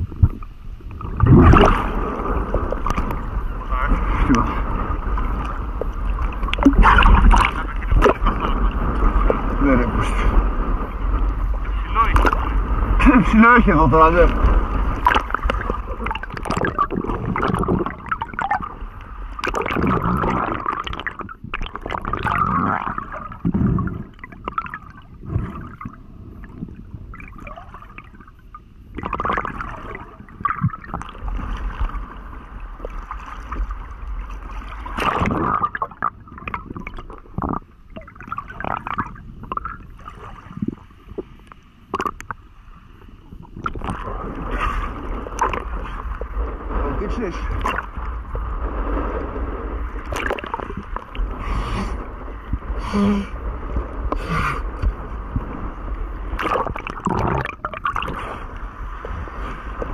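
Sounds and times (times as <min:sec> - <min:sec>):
water gurgling and sloshing: 0:00.0 - 0:59.9.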